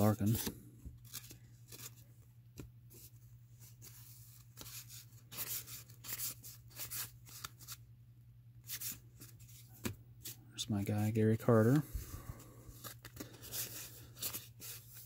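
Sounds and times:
cards rustling and snapping: 0:00.0 - 0:03.1, 0:03.8 - 0:07.8, 0:12.6 - 0:15.0.

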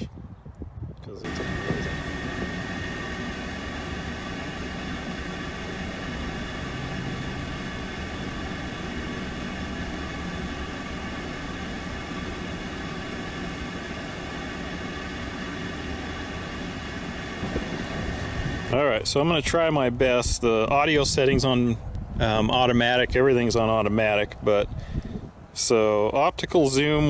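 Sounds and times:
machine hum with hiss: 0:01.2 - 0:19.3.

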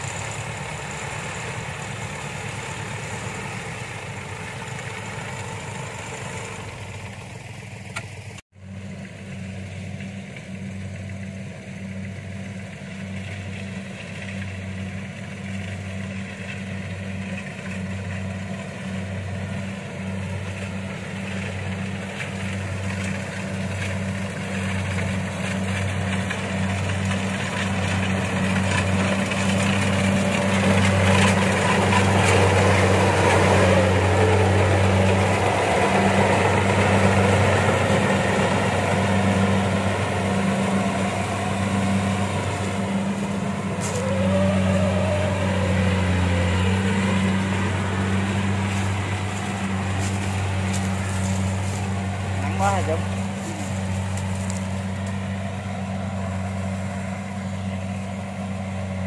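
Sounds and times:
combine harvester engine throbbing: 0:00.0 - 0:59.0
sled engine running: 0:00.0 - 0:59.0.

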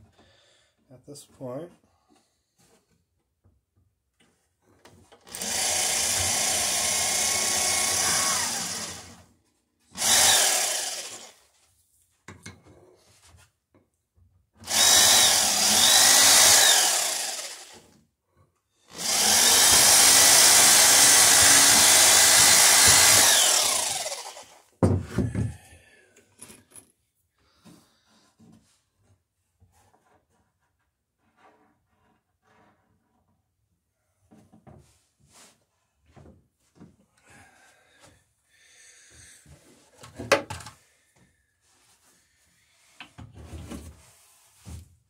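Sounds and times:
electric drill boring wood: 0:05.2 - 0:09.3, 0:09.9 - 0:11.4, 0:14.6 - 0:17.9, 0:18.9 - 0:24.7.

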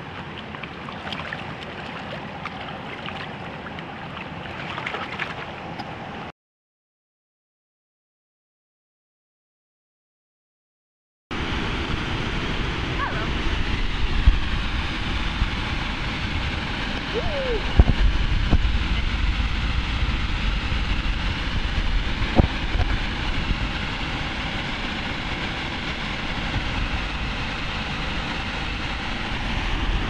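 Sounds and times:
fast river water rushing: 0:00.0 - 0:06.3
wind rumbling on microphone: 0:11.4 - 0:30.0.

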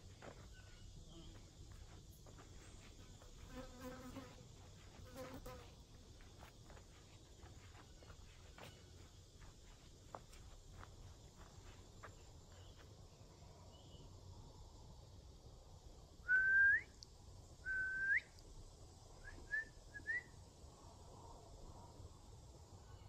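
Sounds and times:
whistled rising notes: 0:17.7 - 0:18.4.

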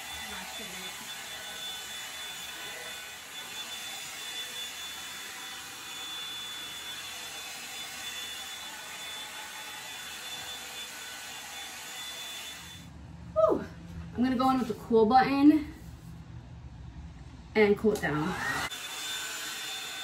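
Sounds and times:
hot-air brush dryer running: 0:00.0 - 0:12.9, 0:18.0 - 0:20.0.

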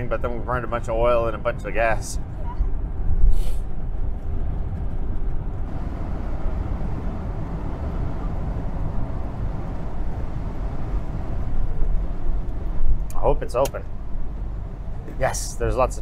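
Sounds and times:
car engine droning in cabin: 0:00.0 - 0:16.0
tyre hiss on wet road: 0:03.3 - 0:03.6.

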